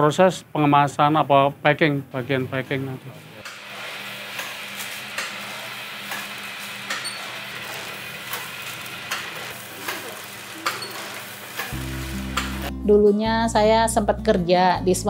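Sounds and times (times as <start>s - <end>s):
machine clacking: 3.4s - 11.8s
packing machine humming and hissing: 3.4s - 12.7s
music: 11.6s - 15.0s.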